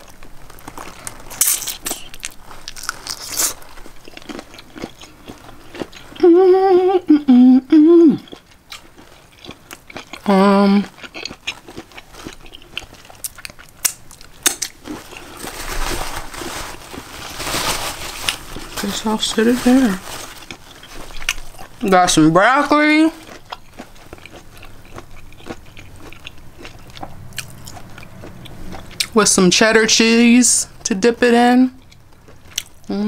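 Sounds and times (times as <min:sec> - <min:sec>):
person chewing wetly: 0:00.0 - 0:06.4, 0:08.2 - 0:15.6, 0:20.3 - 0:29.2, 0:31.8 - 0:33.0
woman humming mouth closed: 0:06.2 - 0:08.3.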